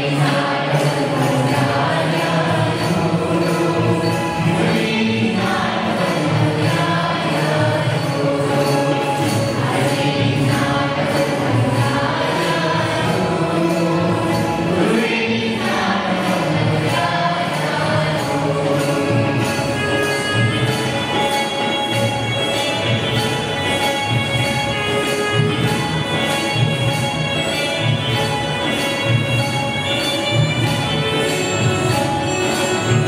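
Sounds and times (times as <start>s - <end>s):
group singing folk song: 0.0s - 19.9s
instrumental accompaniment: 0.0s - 33.0s.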